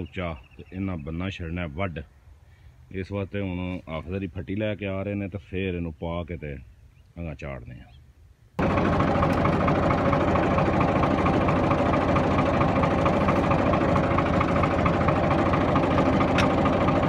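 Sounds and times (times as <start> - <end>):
tractor diesel engine idling: 8.6 - 17.0.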